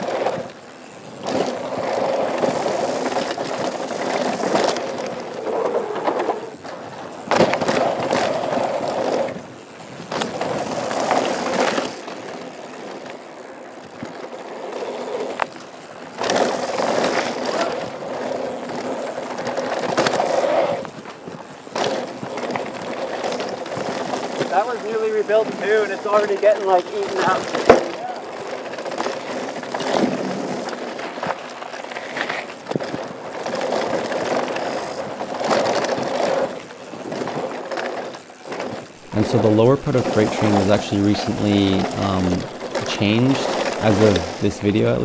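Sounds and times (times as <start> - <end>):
bike rattling: 0.0 - 45.0
bike tyres on dirt and rocks: 0.0 - 45.0.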